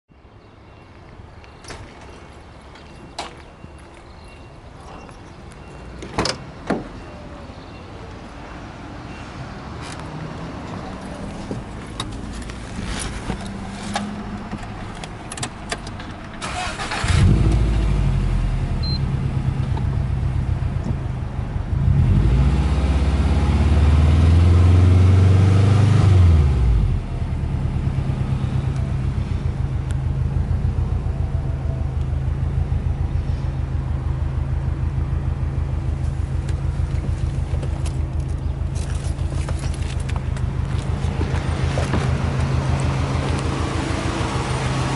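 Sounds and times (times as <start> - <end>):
car engine starting and idling: 10.7 - 44.9
car engine revving: 16.4 - 19.6, 21.7 - 31.1, 36.3 - 44.9.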